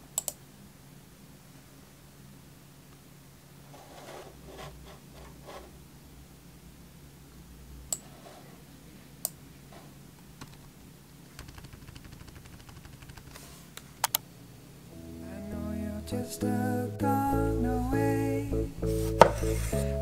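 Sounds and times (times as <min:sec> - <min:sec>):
faint steady hum: 0:00.0 - 0:20.0
computer mouse clicks: 0:00.2 - 0:00.4, 0:11.4 - 0:14.2.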